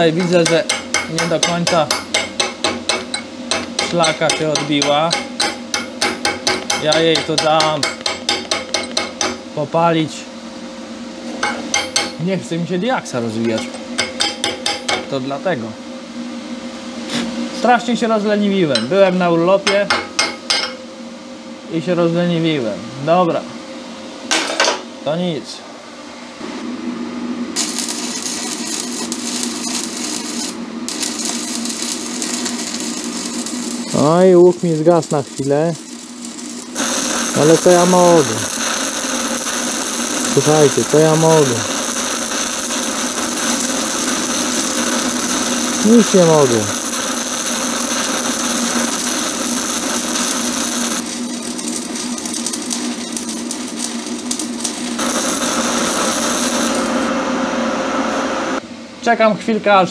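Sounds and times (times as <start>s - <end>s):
welding arc crackling: 0.0s - 9.4s, 27.6s - 58.6s.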